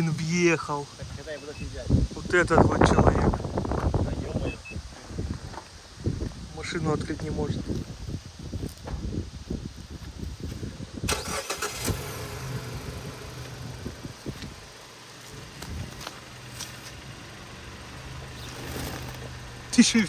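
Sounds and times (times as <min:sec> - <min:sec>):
car engine cranking: 0:11.1 - 0:20.0
car engine idling: 0:11.1 - 0:20.0.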